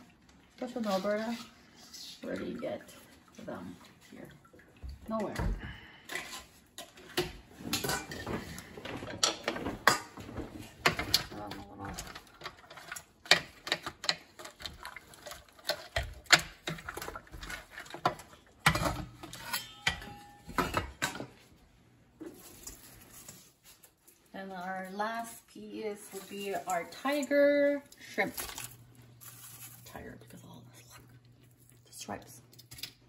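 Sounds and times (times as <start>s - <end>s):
utensils scraping steel pot: 12.2s - 20.5s.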